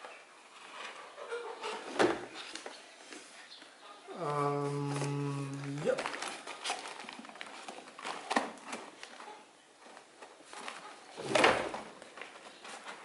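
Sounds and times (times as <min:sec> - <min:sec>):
paper bag rustling and crinkling: 0:04.8 - 0:13.0.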